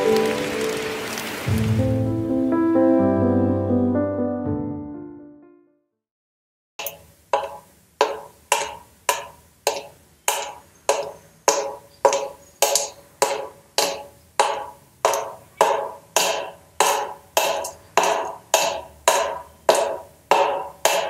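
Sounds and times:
woody percussion beat: 6.8s - 21.0s.

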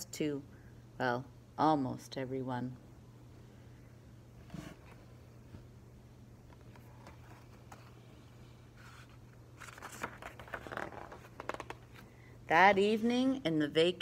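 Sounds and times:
faint steady hum: 0.0s - 14.0s
book pages rustling: 6.5s - 12.1s.

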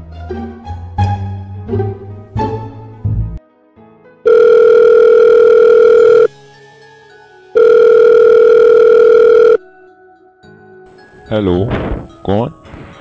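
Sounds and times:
telephone ringing: 4.3s - 6.3s, 7.6s - 9.6s.

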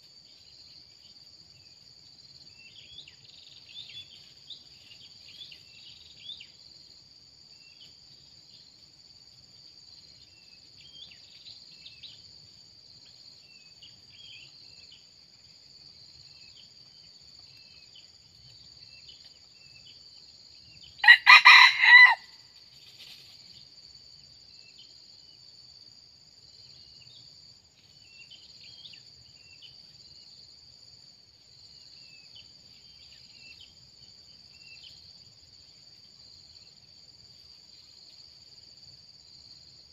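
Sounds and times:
rooster crowing: 21.0s - 22.4s.

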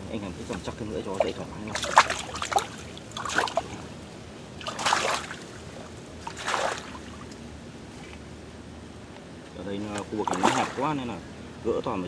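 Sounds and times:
fish thrashing in water: 1.2s - 3.8s, 4.6s - 5.6s, 6.2s - 7.2s, 10.2s - 10.9s.

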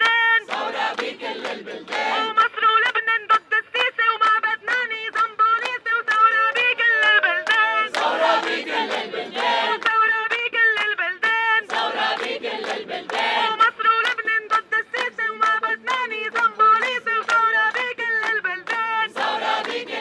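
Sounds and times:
crowd singing in chorus: 0.0s - 2.4s, 6.6s - 10.1s, 11.4s - 13.9s, 18.6s - 20.0s
woman singing through megaphone: 0.0s - 20.0s.

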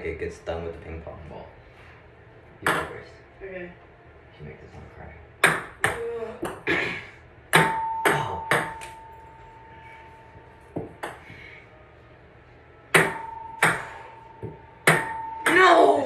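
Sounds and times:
ping pong ball bouncing: 2.6s - 2.9s, 5.4s - 6.6s, 7.5s - 9.3s, 10.7s - 11.3s, 12.9s - 16.0s.

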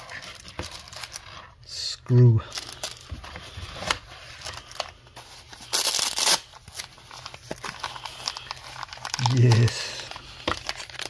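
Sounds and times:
packaging rustling: 0.0s - 1.6s, 2.5s - 11.0s.

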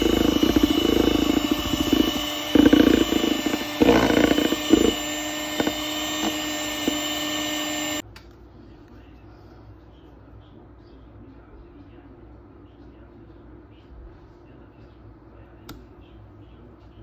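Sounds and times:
electric hand mixer whirring: 0.0s - 8.0s.

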